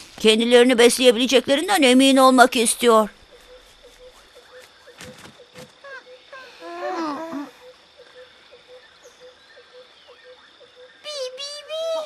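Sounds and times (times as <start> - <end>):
babbling call: 5.8 - 7.7, 11.0 - 12.0
cartoon baby animals squeaky chirps: 11.0 - 12.0.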